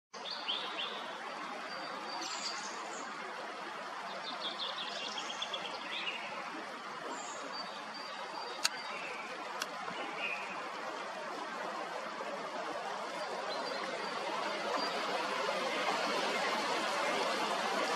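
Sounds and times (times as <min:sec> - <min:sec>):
stream rushing: 0:02.2 - 0:17.9
sharp clicks: 0:08.6 - 0:08.8.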